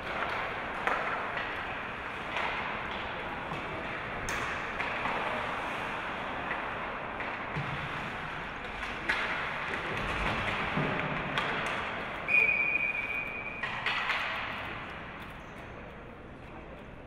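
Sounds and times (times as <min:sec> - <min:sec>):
hockey stick and puck knocks: 0:00.0 - 0:05.6, 0:06.4 - 0:08.1, 0:08.7 - 0:12.1, 0:13.6 - 0:14.8
referee's whistle: 0:12.3 - 0:13.6.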